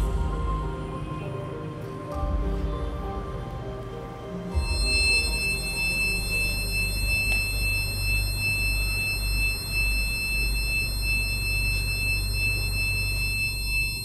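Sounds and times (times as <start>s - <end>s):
high-pitched ringing tone: 4.5s - 14.0s.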